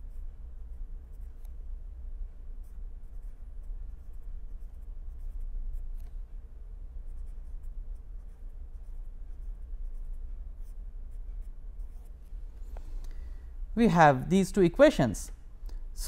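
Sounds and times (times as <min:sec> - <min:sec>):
low steady hum: 0:00.0 - 0:16.0
pen scratching on paper: 0:00.1 - 0:01.6, 0:02.6 - 0:06.1, 0:07.0 - 0:12.2.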